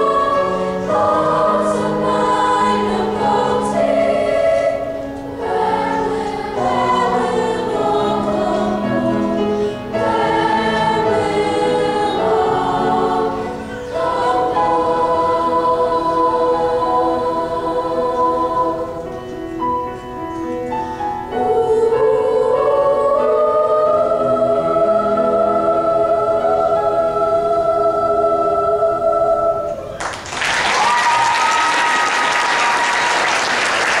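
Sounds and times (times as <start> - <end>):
choir singing: 0.0 - 20.0, 20.8 - 30.0
applause: 30.0 - 34.0.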